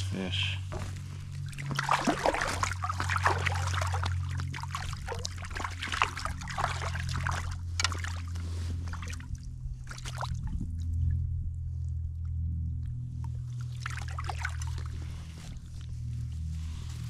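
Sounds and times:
steady low hum: 0:00.0 - 0:17.0
river water splashing: 0:00.7 - 0:10.4, 0:13.5 - 0:15.3.

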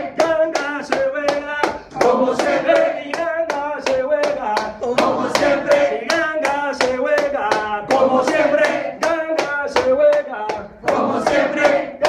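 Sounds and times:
hand claps: 0:00.0 - 0:12.0.

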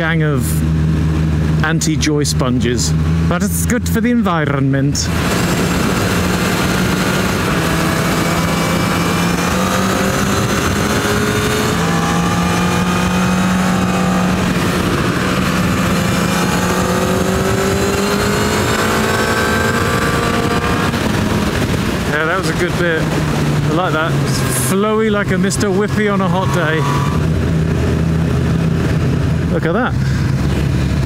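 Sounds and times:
wind and road noise: 0:00.0 - 0:31.0.

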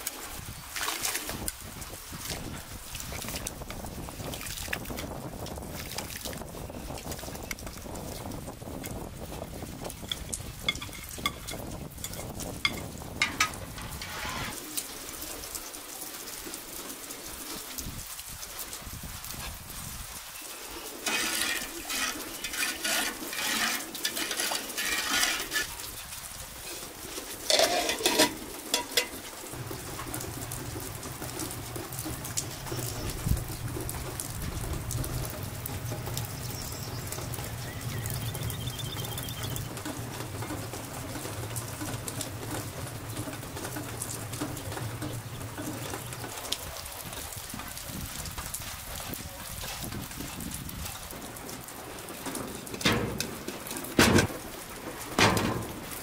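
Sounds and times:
pot clattering: 0:10.0 - 0:14.6, 0:21.1 - 0:25.7, 0:27.4 - 0:29.2, 0:52.6 - 0:54.3
spoon stirring liquid in pot: 0:10.0 - 0:14.6, 0:21.0 - 0:25.7, 0:27.4 - 0:29.2.

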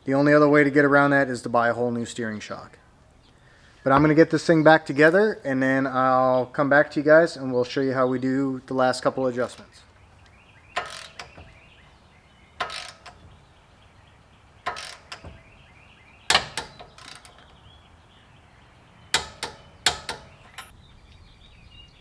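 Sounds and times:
birds chirping faintly: 0:00.0 - 0:22.0
socket ratchet ratcheting: 0:10.8 - 0:11.7, 0:12.6 - 0:13.5, 0:14.6 - 0:15.6, 0:16.3 - 0:17.6, 0:19.1 - 0:20.7.

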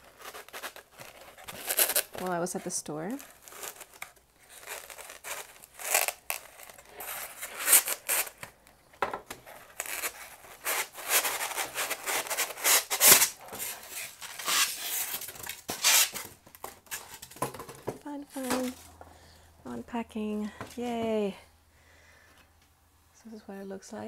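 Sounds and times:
cardboard and foam rustling: 0:00.0 - 0:08.6, 0:09.2 - 0:19.0.

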